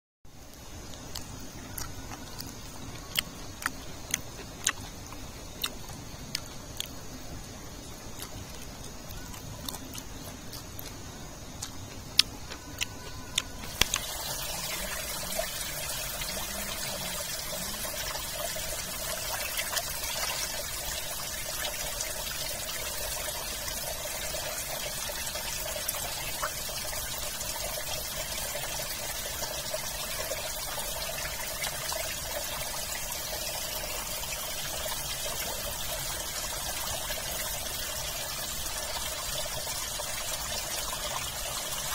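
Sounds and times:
shallow rocky stream running: 0.4 - 41.9
crisp bites and chewing: 8.2 - 11.0.

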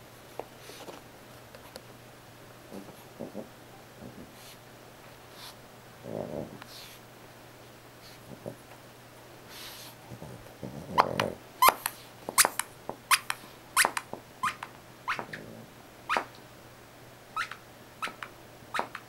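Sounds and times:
dog grumbling: 6.0 - 6.6, 10.1 - 11.4, 14.4 - 16.2.

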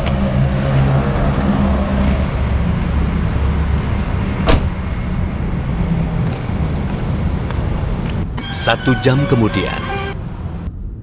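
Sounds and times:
low engine hum: 0.0 - 8.4.

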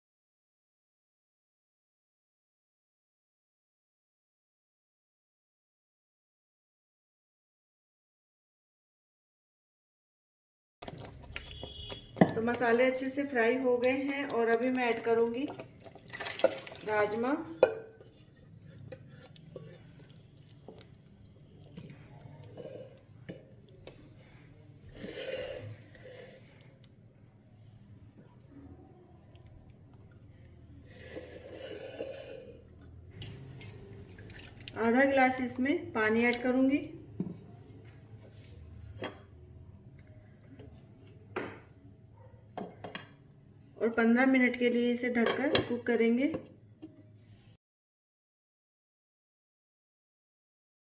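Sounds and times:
spatula stirring thick gravy: 10.9 - 26.7.

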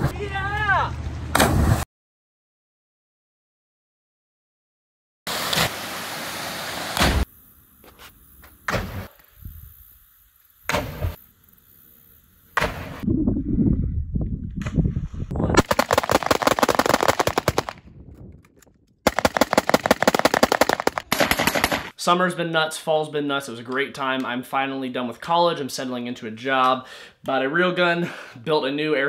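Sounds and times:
airsoft rifles firing full auto: 15.6 - 17.8, 19.1 - 22.0.

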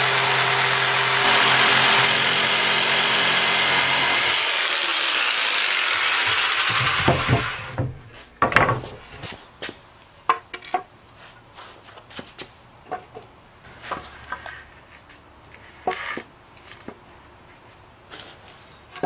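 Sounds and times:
power saw: 0.0 - 8.0
wooden boards knocking on concrete: 6.2 - 9.0.

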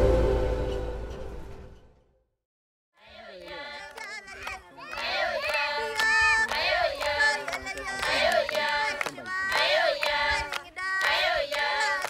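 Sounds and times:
women singing together: 3.0 - 12.0
hand claps: 3.4 - 12.0.

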